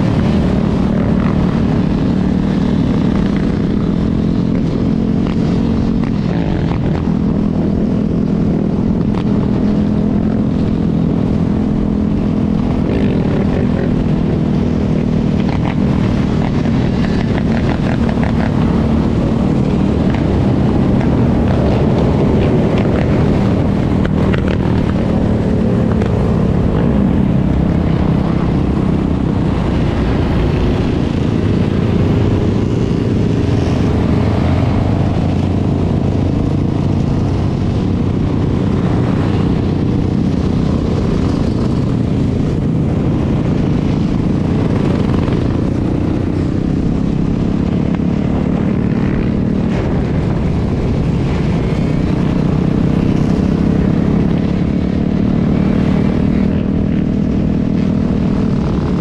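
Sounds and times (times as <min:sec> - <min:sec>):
dirt bike engine running: 0:00.0 - 0:59.0.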